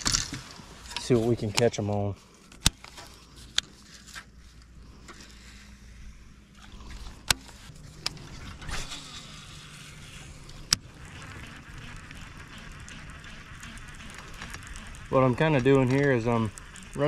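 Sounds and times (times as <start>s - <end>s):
electric motor humming: 6.6s - 17.0s.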